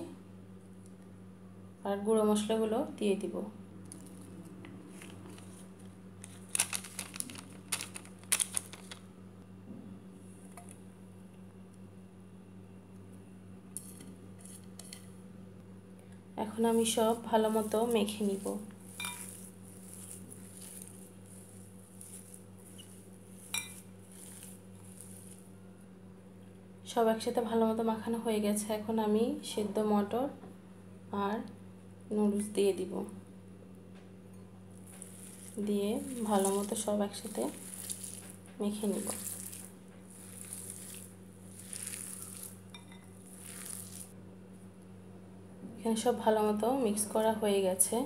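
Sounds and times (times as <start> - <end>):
steady low hum: 0.0 - 48.0
hand squishing mashed potato: 16.6 - 25.6, 34.7 - 44.1.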